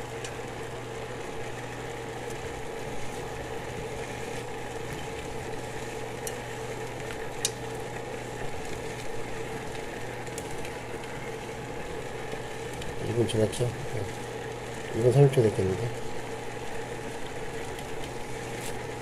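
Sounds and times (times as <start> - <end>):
constant hum: 0.0 - 19.0
water boiling in a pot: 0.0 - 19.0.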